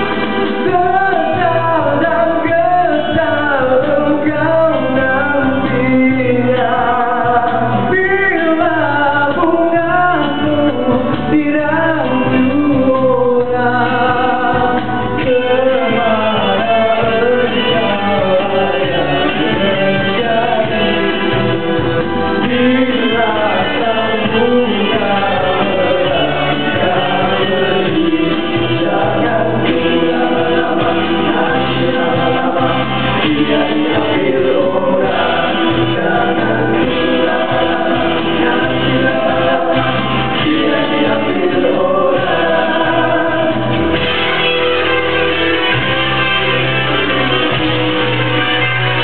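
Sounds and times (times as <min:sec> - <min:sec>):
young men singing together: 0:00.0 - 0:44.1
band playing with bass line: 0:00.0 - 0:49.0.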